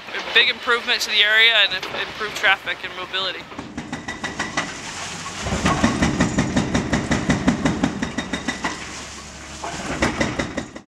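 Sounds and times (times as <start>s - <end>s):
concrete knocking and cracking: 3.5s - 4.8s, 5.4s - 8.8s, 9.7s - 10.8s.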